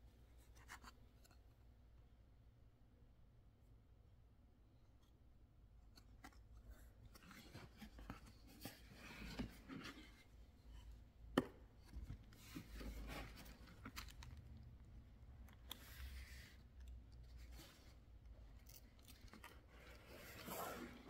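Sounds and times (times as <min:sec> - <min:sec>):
cardboard box rubbing and scraping: 0:20.0 - 0:21.0.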